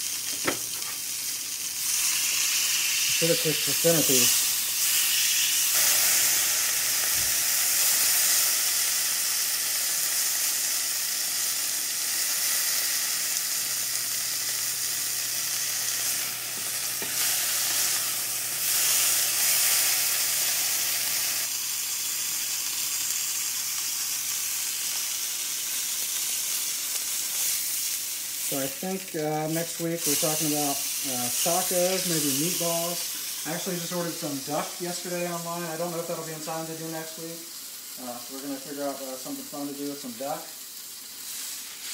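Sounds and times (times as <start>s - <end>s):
steak sizzling in a skillet: 0.0s - 41.9s.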